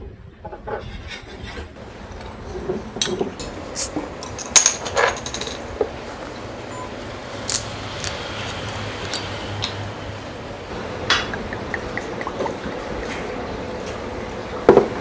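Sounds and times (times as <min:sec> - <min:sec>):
glass bottles clinking: 0:04.2 - 0:05.7.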